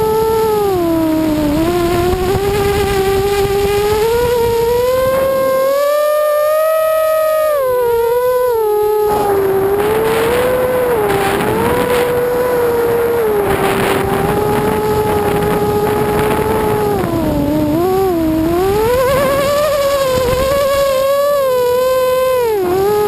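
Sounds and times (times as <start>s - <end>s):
quadcopter propellers whining: 0.0s - 23.0s
wind rush on microphone: 0.0s - 23.0s.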